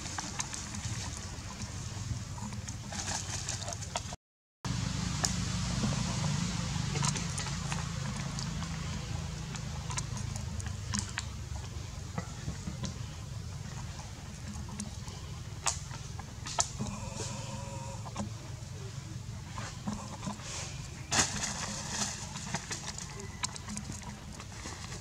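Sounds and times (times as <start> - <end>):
steady low hum: 4.7 - 25.0.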